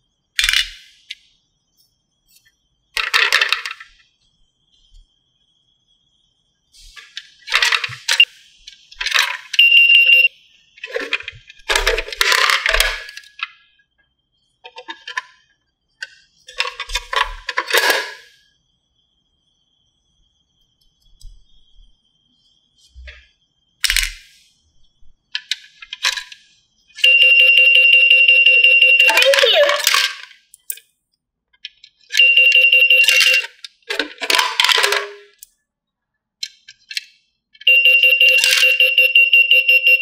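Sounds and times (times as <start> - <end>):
plastic clatters: 7.0 - 8.3, 10.8 - 13.6, 29.2 - 30.8, 33.1 - 35.5
toy coins clinking: 27.0 - 30.9, 32.1 - 35.5, 37.7 - 39.1.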